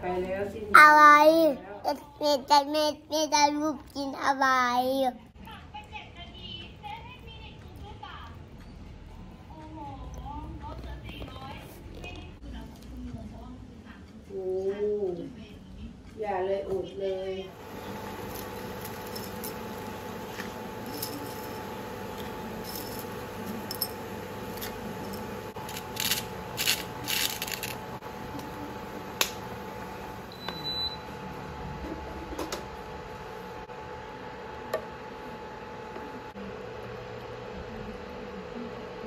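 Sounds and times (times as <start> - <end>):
steady hum: 17.5 - 39.0
short high beep: 30.3 - 31.0.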